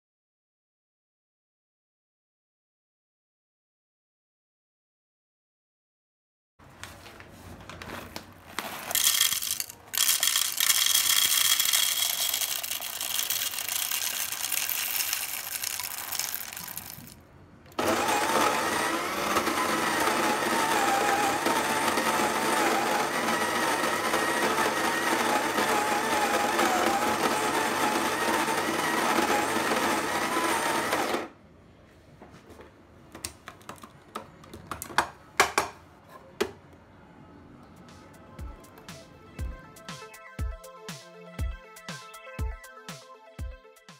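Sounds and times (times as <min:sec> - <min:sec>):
coffee beans rattling into hopper: 0:08.6 - 0:17.2
coffee grinder motor whine: 0:09.0 - 0:17.2, 0:17.8 - 0:31.3.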